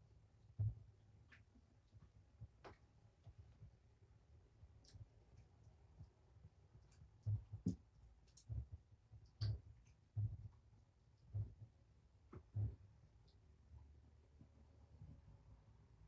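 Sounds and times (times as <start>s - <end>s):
kitten eating from a bowl: 4.6s - 11.6s.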